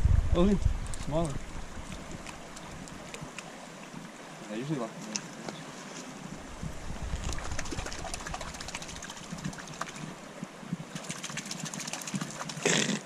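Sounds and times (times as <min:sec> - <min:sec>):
low rumble: 0:00.0 - 0:01.8
hand splashing water: 0:11.0 - 0:12.6.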